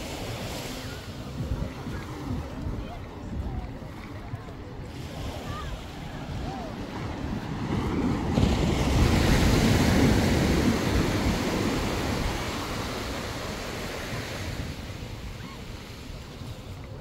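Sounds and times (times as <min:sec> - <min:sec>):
sea waves breaking on beach: 0:00.0 - 0:17.0.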